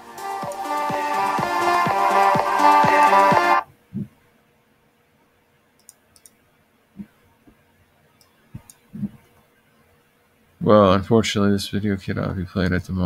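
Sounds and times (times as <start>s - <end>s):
background music: 0.0s - 3.6s
computer mouse clicks: 5.8s - 6.4s, 8.2s - 9.1s.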